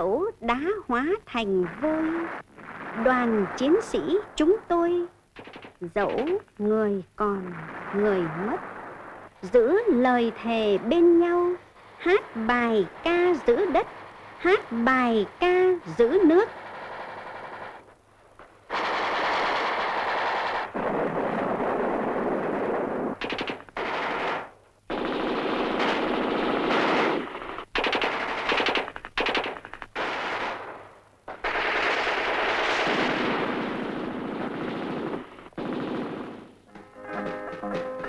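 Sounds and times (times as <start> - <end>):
automatic gunfire bursts: 5.4 - 6.4, 18.7 - 36.6.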